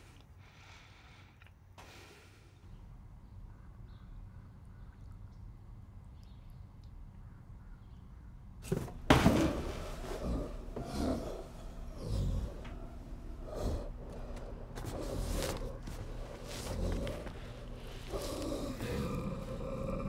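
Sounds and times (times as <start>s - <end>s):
low quiet hum: 0.0s - 20.0s
man growling and grunting: 10.1s - 15.7s, 16.4s - 20.0s.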